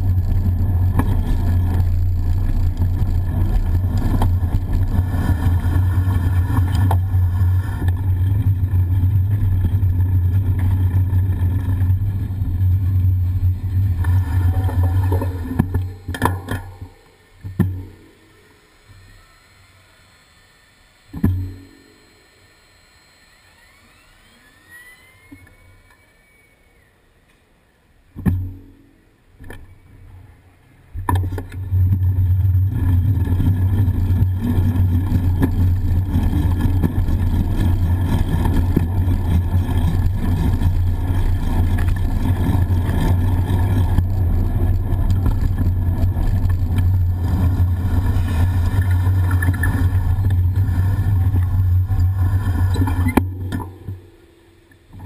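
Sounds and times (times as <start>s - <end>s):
wind and road noise rumble: 0.0s - 17.9s, 29.4s - 54.0s
quiet street traffic: 24.9s - 31.8s.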